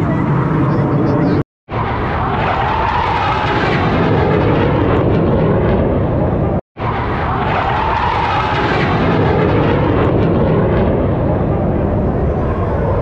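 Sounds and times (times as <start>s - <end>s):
jet aircraft roaring overhead: 0.0s - 13.0s.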